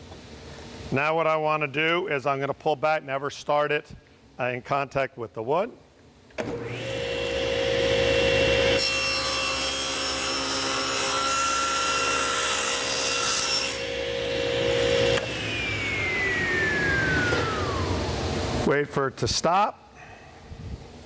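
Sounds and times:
saw blade cutting wood: 6.4s - 18.1s
table saw spinning: 6.4s - 18.6s.

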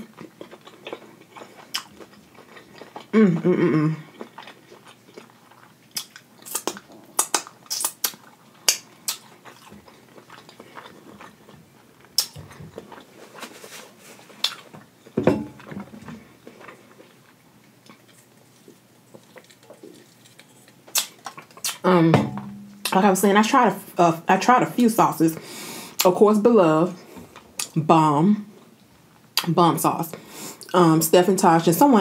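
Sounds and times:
person chewing food: 0.0s - 21.8s
lip smacks: 5.9s - 9.7s, 19.2s - 21.8s.

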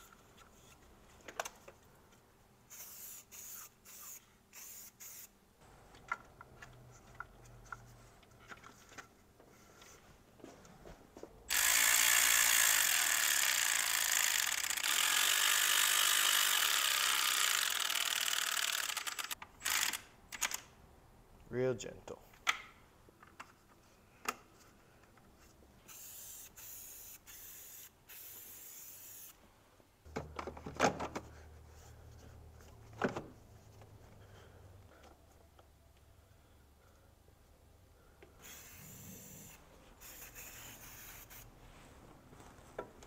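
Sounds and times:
cordless ratchet running: 11.5s - 20.0s, 38.4s - 41.4s.

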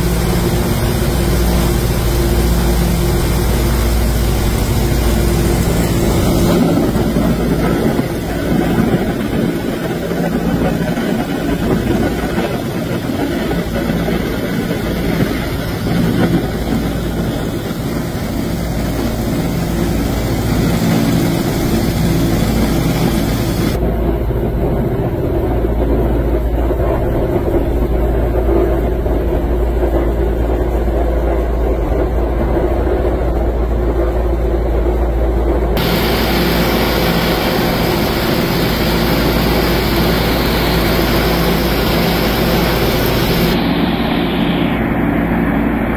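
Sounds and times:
propeller aircraft droning in cabin: 0.0s - 45.9s
high hiss: 17.2s - 23.8s, 35.8s - 45.2s.

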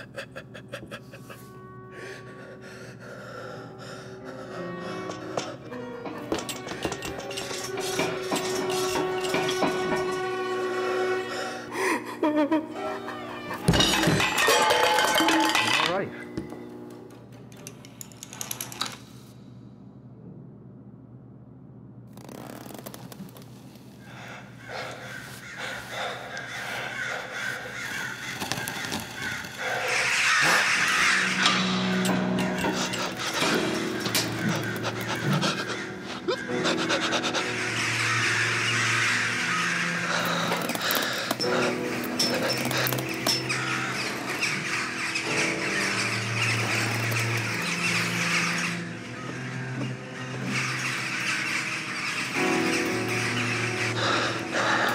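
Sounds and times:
crow-like cawing: 24.0s - 54.9s.

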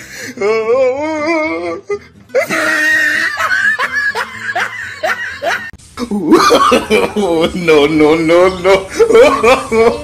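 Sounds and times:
person laughing and giggling: 2.3s - 10.0s.

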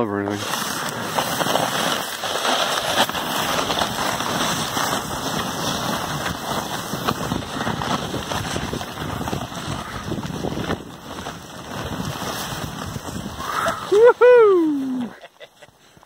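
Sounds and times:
person sliding down snow: 0.2s - 16.0s.

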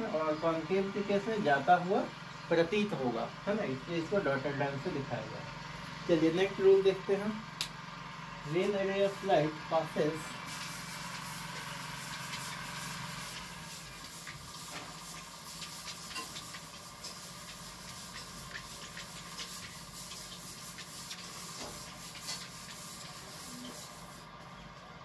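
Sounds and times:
background hiss and hum: 0.0s - 25.0s
rubbing whiteboard: 10.9s - 24.2s.

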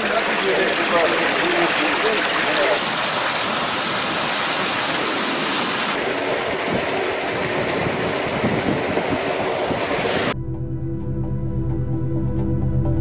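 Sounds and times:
water rushing in canal: 0.0s - 10.4s.

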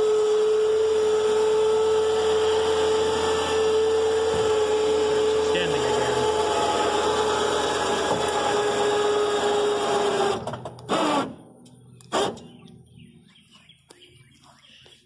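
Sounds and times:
electric winch running: 0.0s - 11.4s.

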